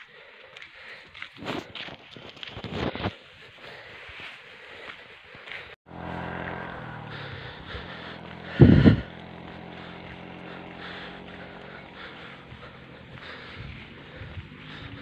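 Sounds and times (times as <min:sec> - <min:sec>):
motorcycle engine running: 0:05.8 - 0:15.0.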